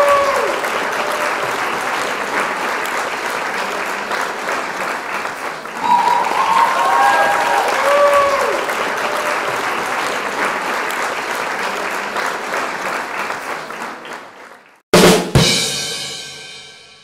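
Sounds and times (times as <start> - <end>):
applause: 0.0 - 14.9
drum hits: 14.9 - 16.9.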